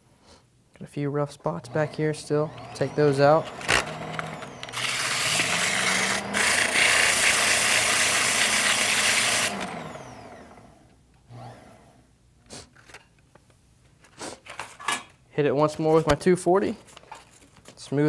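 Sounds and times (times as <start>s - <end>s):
motor humming: 1.6s - 12.0s.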